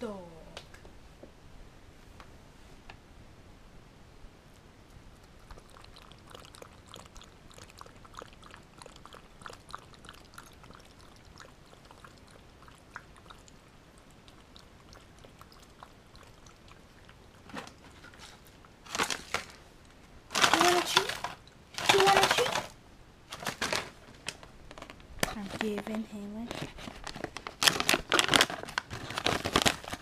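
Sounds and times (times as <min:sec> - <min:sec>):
dog lapping water: 0:05.3 - 0:17.9.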